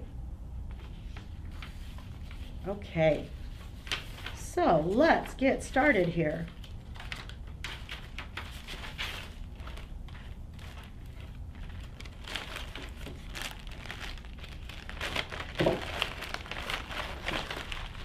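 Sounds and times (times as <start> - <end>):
plastic bag crinkling: 6.4 - 18.0.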